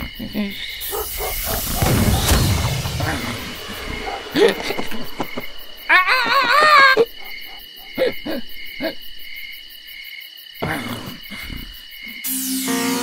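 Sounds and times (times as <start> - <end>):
warbling hoot-like cry: 0.0 - 9.1
brief rushing noise: 1.0 - 6.4.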